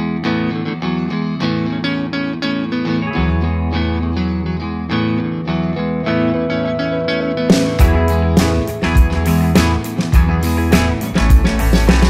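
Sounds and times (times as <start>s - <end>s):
strummed guitar instrumental: 0.0s - 12.0s
deep bass note: 6.2s - 10.9s.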